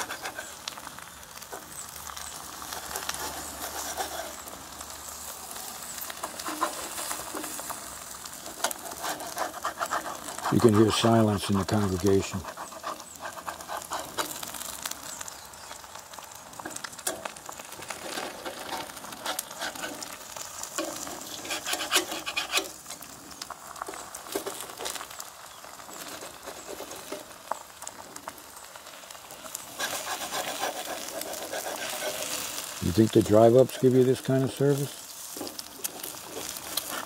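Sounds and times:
eggs sizzling in pan: 0:00.0 - 0:37.0
metal spatula scraping pan: 0:02.7 - 0:04.5, 0:17.9 - 0:22.8, 0:29.8 - 0:32.8.

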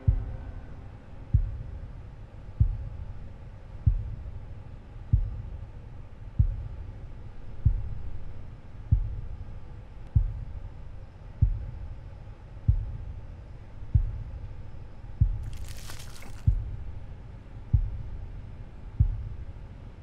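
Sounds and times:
deep heartbeat-like thumps: 0:00.0 - 0:00.6, 0:01.3 - 0:01.9, 0:02.5 - 0:03.2, 0:03.8 - 0:04.4, 0:05.1 - 0:05.6, 0:06.3 - 0:06.9, 0:07.6 - 0:08.3, 0:08.9 - 0:09.4, 0:10.1 - 0:10.6, 0:11.4 - 0:11.9, 0:12.6 - 0:13.2, 0:13.8 - 0:17.0, 0:17.7 - 0:18.2, 0:19.0 - 0:19.4
low steady drone: 0:00.0 - 0:15.1.

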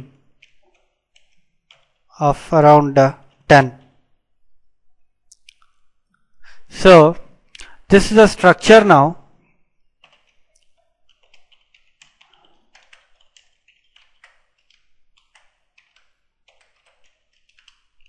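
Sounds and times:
keyboard keystrokes: 0:00.4 - 0:02.1, 0:10.0 - 0:18.0.

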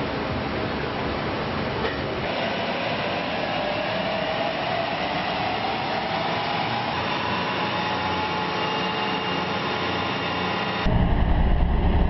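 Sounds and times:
tyres spinning rollers whir: 0:02.2 - 0:10.9
rising whine: 0:02.2 - 0:12.0.

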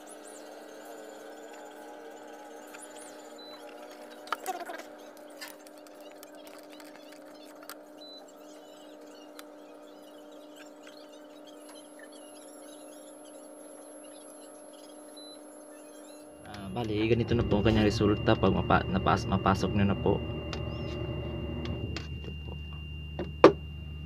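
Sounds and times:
electrical hum: 0:00.0 - 0:24.0
cord clicking and rustling: 0:03.7 - 0:07.8.

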